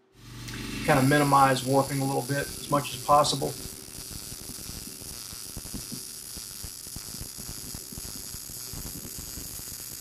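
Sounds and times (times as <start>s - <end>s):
arc welding crackling and hissing: 0.2s - 10.0s.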